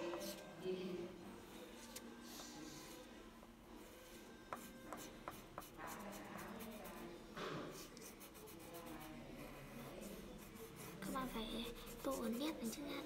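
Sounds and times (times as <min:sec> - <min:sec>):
crayon scratching on paper: 0:04.5 - 0:07.1, 0:07.7 - 0:13.0.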